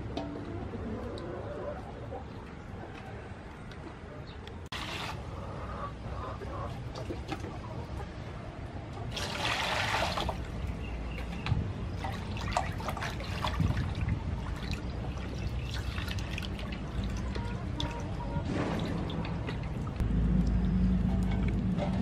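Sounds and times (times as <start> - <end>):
water splashing and sloshing: 0.0 - 22.0
water poured from scoop: 9.1 - 10.4, 12.1 - 17.2.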